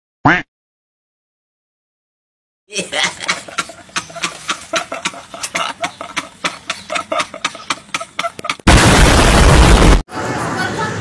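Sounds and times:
men laughing hard: 2.7s - 8.9s.

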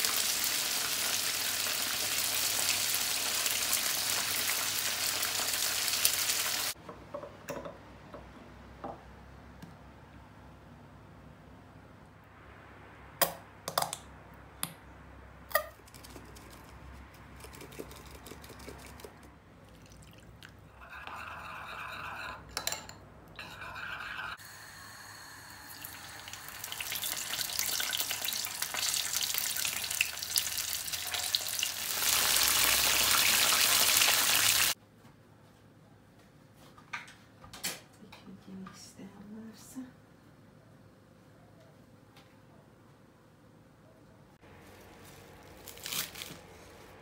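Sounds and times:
chicken wings sizzling in oil: 0.0s - 6.8s, 24.4s - 34.8s
spoon stirring in ceramic bowl: 15.5s - 24.4s.

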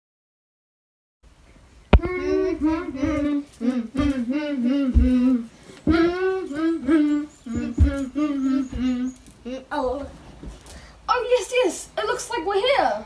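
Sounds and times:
child singing: 2.0s - 10.1s.

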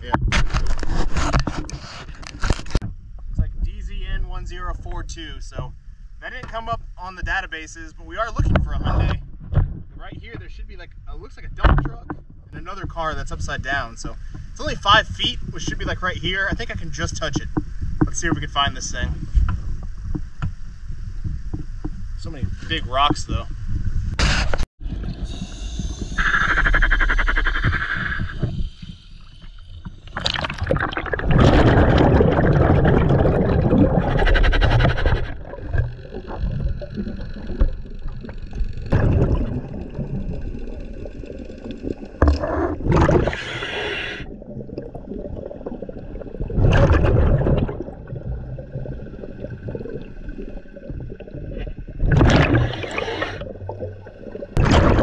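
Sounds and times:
underwater water noise: 11.4s - 55.0s
exhaled bubbles gurgling: 24.8s - 55.0s.

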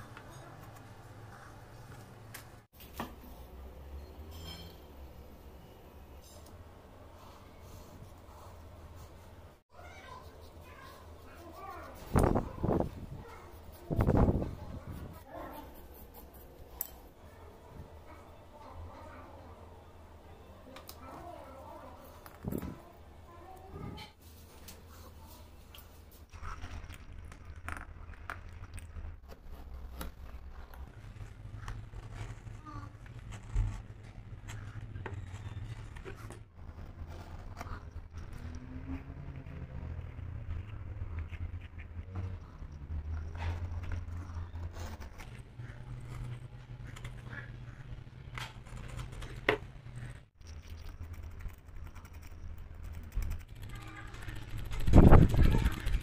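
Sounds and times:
faint scratching: 29.2s - 50.3s.

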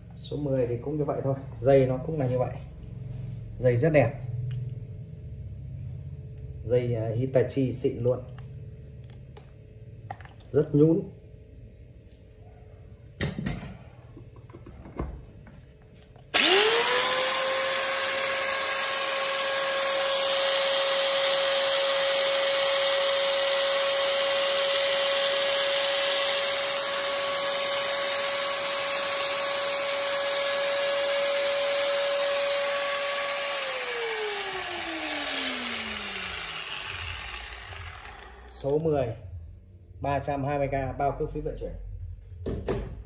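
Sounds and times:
angle grinder whining: 16.2s - 38.9s.

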